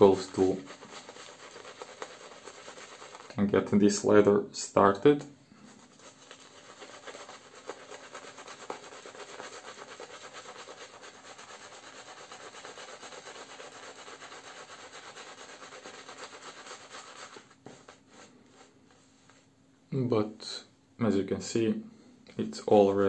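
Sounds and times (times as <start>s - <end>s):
shaving brush rubbing on skin: 0.0s - 3.4s, 5.7s - 19.4s.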